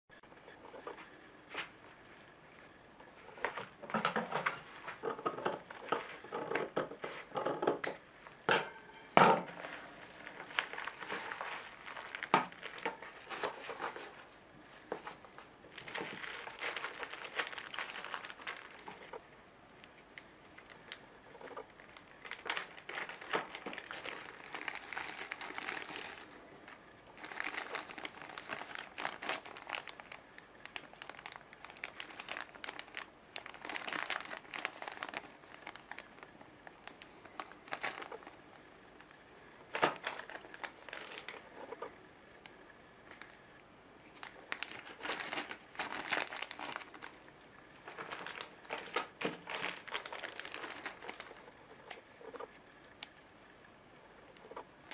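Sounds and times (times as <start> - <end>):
plastic crinkling and rustling: 0.2 - 8.4, 9.2 - 53.3, 54.2 - 54.9.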